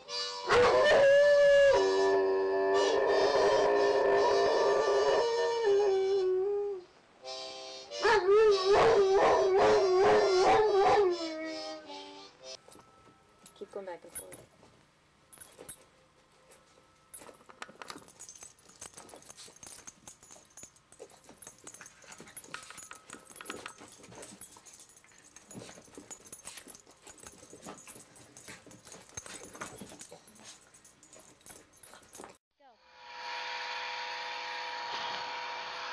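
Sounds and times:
dog howling: 0:08.0 - 0:11.6
dogs scuffling: 0:14.2 - 0:32.4.

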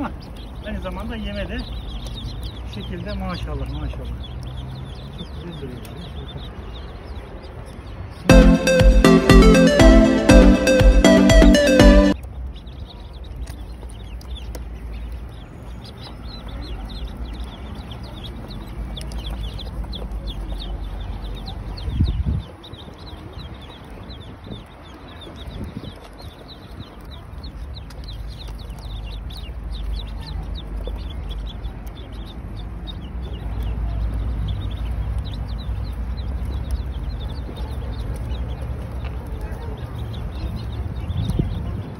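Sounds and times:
ducklings peeping: 0:00.0 - 0:41.9.

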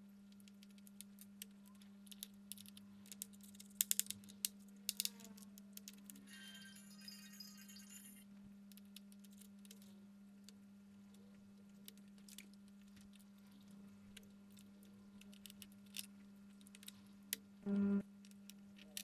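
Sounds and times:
steady low hum: 0:08.3 - 0:19.0
short pitched tone: 0:17.7 - 0:18.0.

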